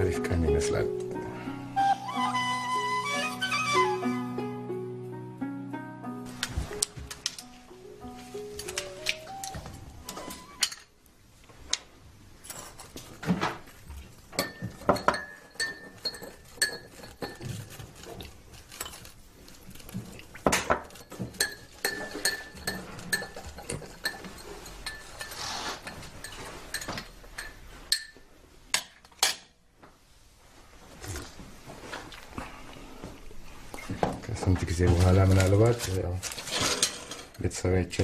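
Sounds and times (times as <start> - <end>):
dishes and cutlery clattering: 12.4 - 19.2, 19.8 - 29.6, 36.3 - 37.6.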